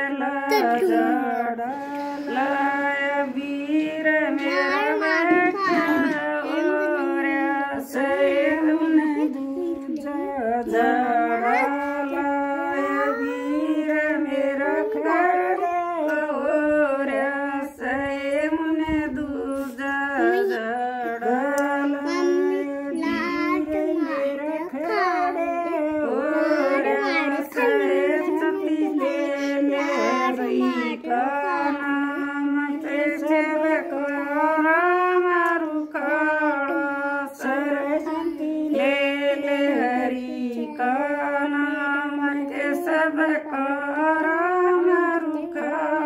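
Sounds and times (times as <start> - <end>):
women singing unaccompanied: 0.0 - 46.0.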